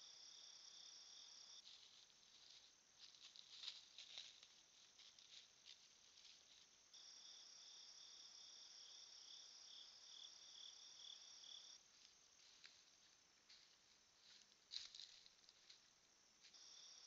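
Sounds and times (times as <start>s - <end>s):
faint ticks and rustles: 1.5s - 7.3s, 11.5s - 17.0s.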